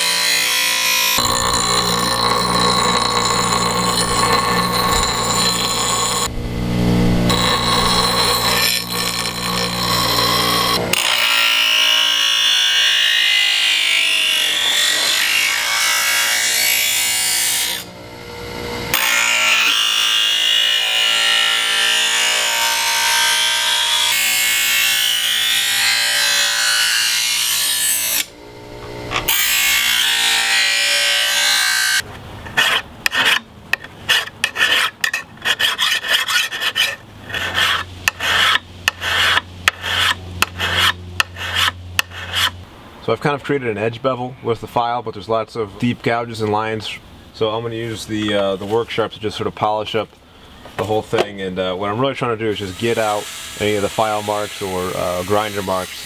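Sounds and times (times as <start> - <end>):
bench grinder grinding steel: 0.0 - 17.9, 18.5 - 42.6
hand file on metal blade: 1.2 - 6.3, 7.3 - 10.8, 32.5 - 42.5, 52.7 - 56.0.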